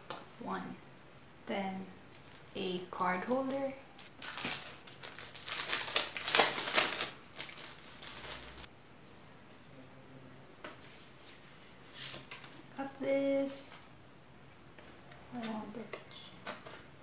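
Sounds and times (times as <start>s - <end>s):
paper envelope crinkling: 2.1s - 2.6s, 3.3s - 8.7s.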